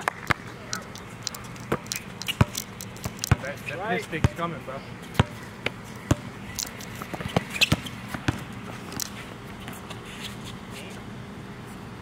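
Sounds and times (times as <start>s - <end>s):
basketball bouncing on hard court: 0.0s - 3.5s, 5.2s - 5.4s, 6.0s - 9.0s.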